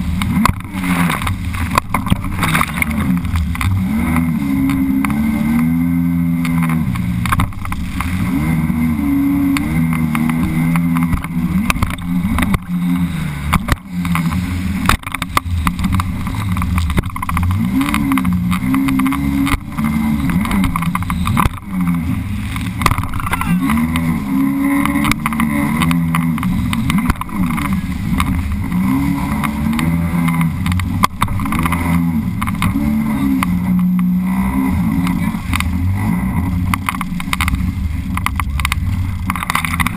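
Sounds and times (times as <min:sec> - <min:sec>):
personal watercraft engine running: 0:00.0 - 0:39.9
water splashing: 0:00.0 - 0:39.9
hull knocking on waves: 0:00.2 - 0:05.7, 0:09.4 - 0:34.2.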